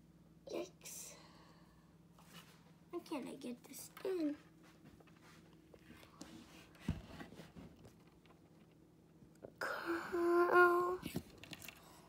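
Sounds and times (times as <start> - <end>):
quiet handling noise: 3.6 - 9.6, 11.0 - 12.0
person humming: 9.6 - 11.1.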